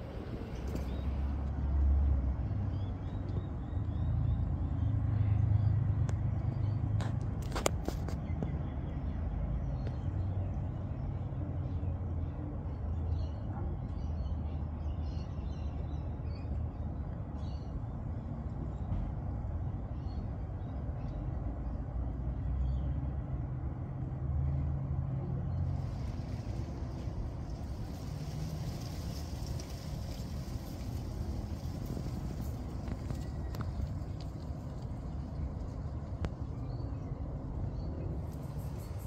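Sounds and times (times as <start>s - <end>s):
low rumble: 25.5s - 39.0s.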